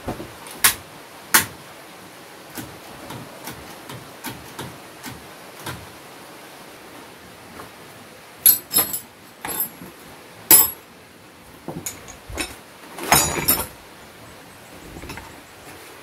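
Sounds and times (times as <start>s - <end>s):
metal wrenches clinking: 8.4s - 9.8s, 10.5s - 10.8s, 11.8s - 13.8s.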